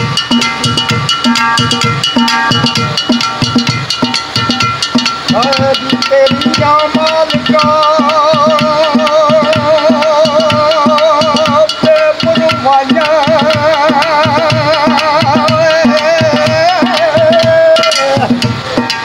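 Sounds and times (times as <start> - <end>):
hand drumming on metal pot: 0.0 - 19.0
man singing with vibrato: 4.5 - 19.0.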